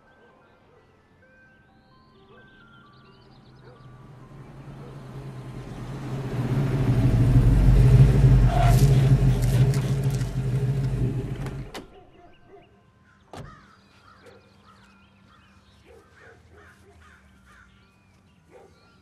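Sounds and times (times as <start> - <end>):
birds calling: 2.3 - 19.0
truck engine running: 3.7 - 12.0.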